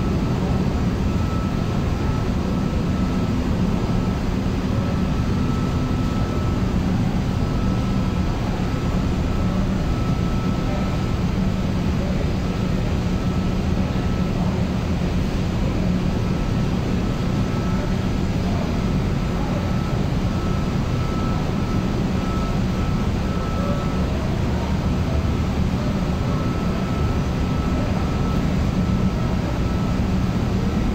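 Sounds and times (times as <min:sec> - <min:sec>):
air conditioning machinery drone: 0:00.0 - 0:30.9
faint high whine: 0:00.0 - 0:30.9.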